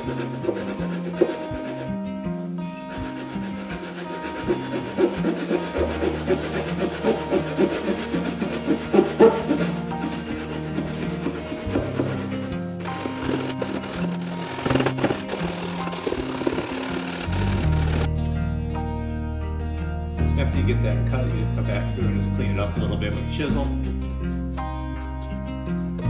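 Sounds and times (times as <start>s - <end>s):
hand saw cutting wood: 0.0s - 2.1s, 2.9s - 18.1s
background music: 0.0s - 26.0s.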